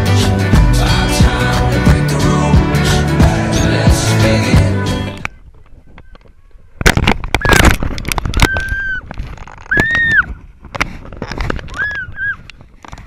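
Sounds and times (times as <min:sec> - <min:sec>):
music: 0:00.0 - 0:05.2.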